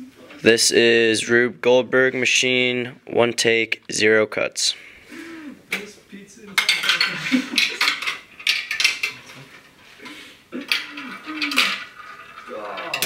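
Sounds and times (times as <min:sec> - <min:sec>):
marbles clattering on plastic track: 0:10.7 - 0:13.0.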